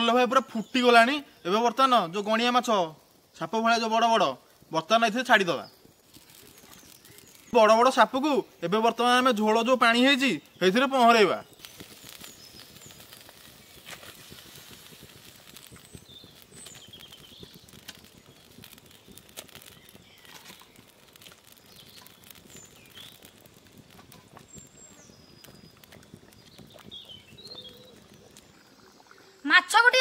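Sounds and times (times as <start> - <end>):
birds chirping: 0.0 - 30.0
curry simmering with pops: 0.0 - 30.0.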